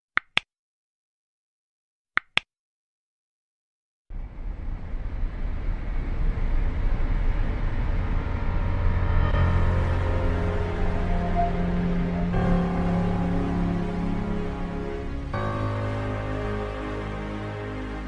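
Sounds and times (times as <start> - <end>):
mouse double clicks: 2.2 - 2.4
steady low noise: 4.1 - 18.0
faint steady tones: 4.2 - 18.0.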